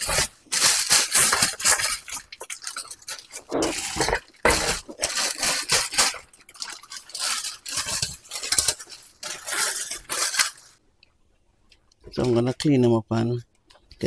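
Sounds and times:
plastic bag crinkling: 0.0 - 10.8.

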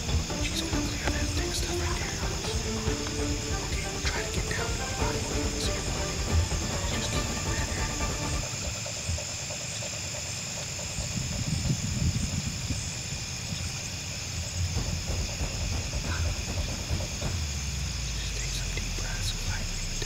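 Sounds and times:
low rumble: 0.0 - 9.2, 14.4 - 20.0
insects trilling: 0.0 - 20.0.

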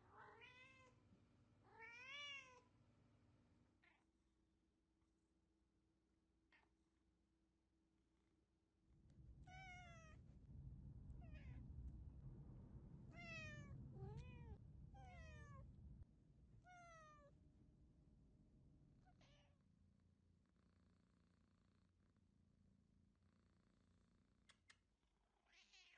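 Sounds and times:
cat meowing: 0.1 - 0.9, 1.7 - 2.6, 9.5 - 10.2, 13.1 - 15.6, 16.7 - 17.3, 19.1 - 19.6, 25.5 - 25.9
low rumble: 8.8 - 16.6.

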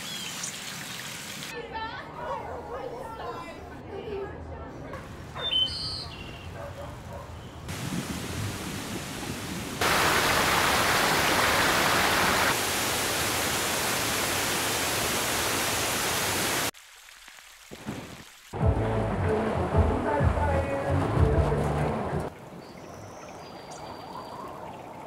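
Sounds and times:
waterfall rushing: 7.7 - 16.7.

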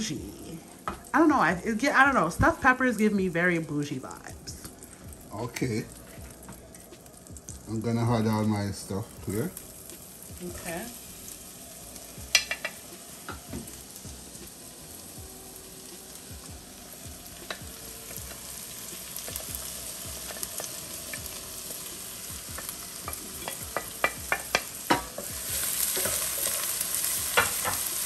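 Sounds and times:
vegetables sizzling in butter: 0.0 - 28.0.

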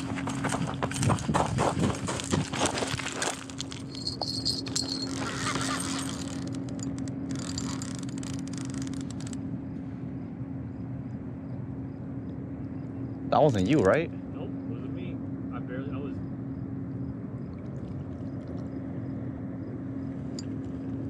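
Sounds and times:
steady low hum: 0.0 - 21.0
bell jingling on fishing rod: 3.7 - 8.9.

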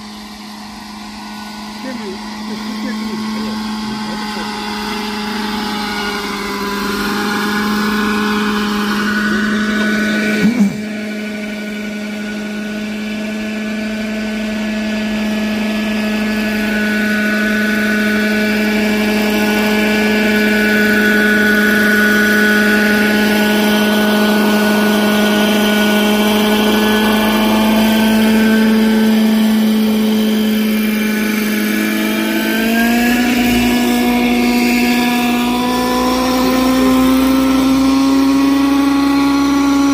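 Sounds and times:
rc helicopter hum and whine: 0.0 - 39.9.

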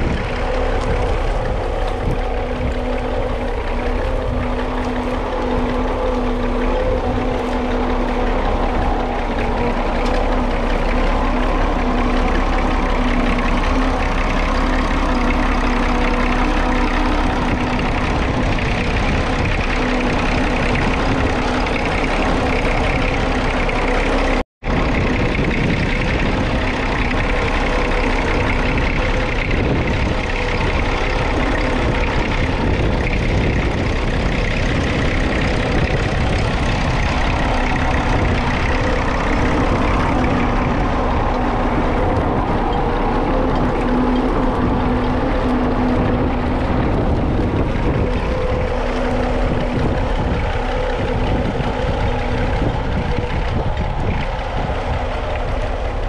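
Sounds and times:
tractor diesel engine running: 0.0 - 56.0.

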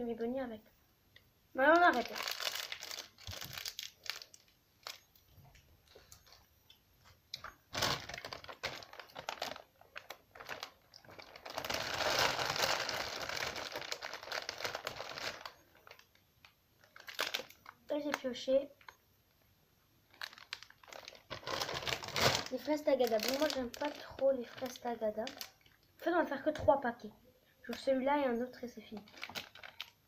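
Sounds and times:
plastic sweet packets crinkling: 1.6 - 6.5, 7.4 - 19.0, 20.0 - 26.1, 28.9 - 30.0.

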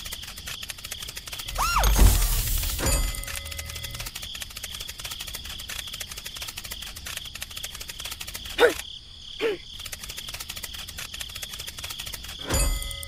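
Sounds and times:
insect chirping trill: 0.0 - 13.0
short rising squeaks: 1.4 - 4.0.

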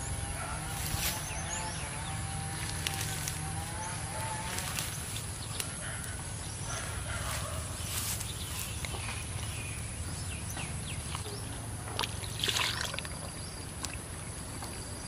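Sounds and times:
hands squelching in wet mud: 11.0 - 14.8.

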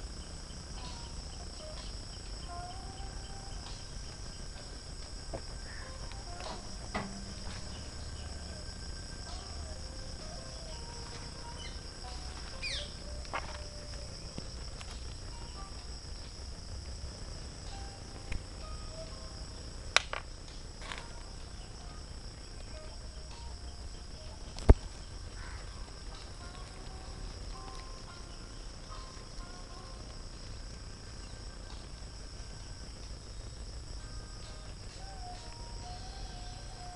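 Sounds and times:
insects droning: 0.0 - 36.9
low rumble: 3.5 - 10.5.

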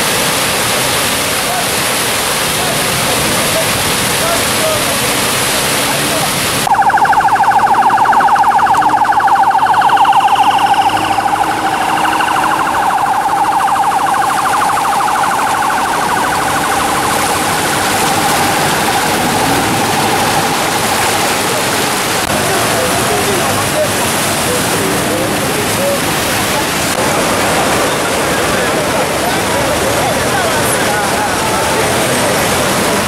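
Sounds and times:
floodwater rushing: 0.0 - 33.0
vehicles splashing through water: 0.0 - 33.0
electronic siren warbling: 6.7 - 21.6.

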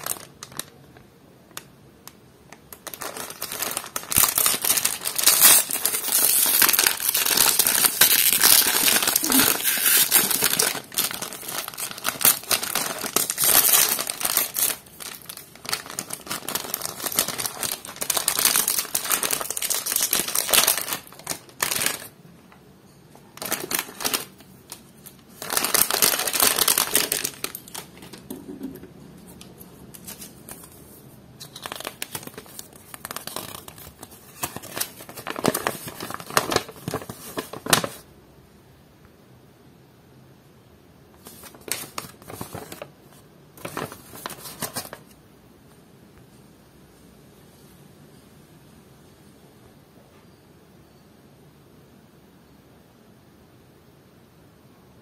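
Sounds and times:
foil wrapper crinkling: 0.0 - 1.7, 2.6 - 22.2, 23.2 - 28.7, 29.4 - 38.1, 41.2 - 45.2.

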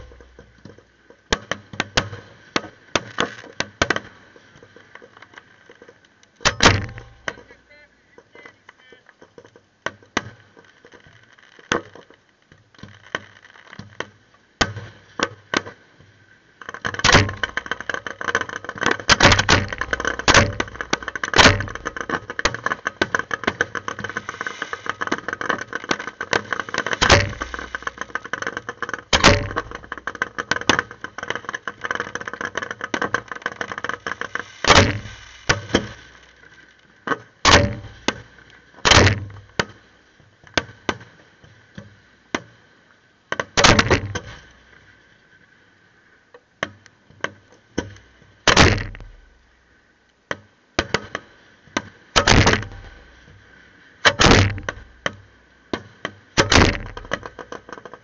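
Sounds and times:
fireworks crackling pops: 0.0 - 42.6, 43.3 - 45.1, 46.7 - 49.6, 50.3 - 58.0
fireworks bangs: 26.0 - 28.5, 34.4 - 36.4.

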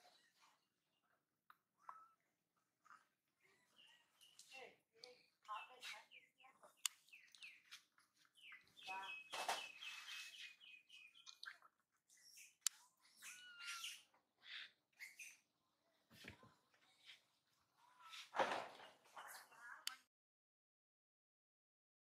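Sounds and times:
high-pitched chirping calls: 5.4 - 15.5.

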